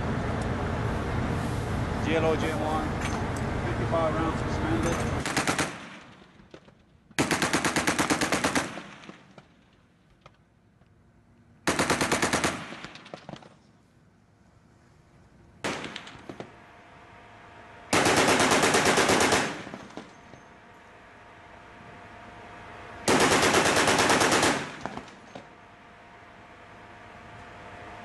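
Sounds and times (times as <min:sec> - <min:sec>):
chain gun firing bursts: 0:05.2 - 0:06.2, 0:07.2 - 0:09.4, 0:11.6 - 0:13.5, 0:15.6 - 0:16.5, 0:17.9 - 0:20.2, 0:23.1 - 0:25.4.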